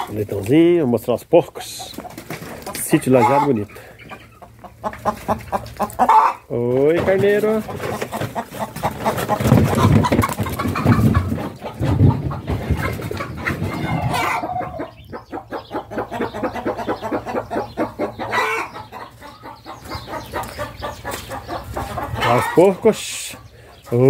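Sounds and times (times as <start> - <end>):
chickens clucking: 0.0 - 24.0.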